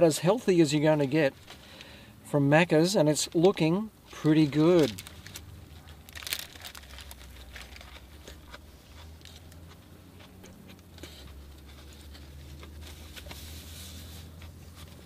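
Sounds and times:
paper wrapper rustling: 3.4s - 8.4s
crisp bite crackling: 4.1s - 13.4s
chewing with crunches: 4.1s - 15.0s.

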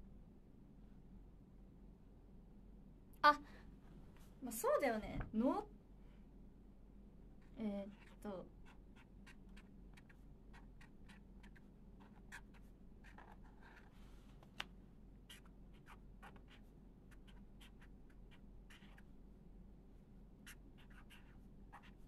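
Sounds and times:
pen scratching on paper: 7.9s - 14.0s, 15.3s - 19.1s, 20.4s - 22.0s.

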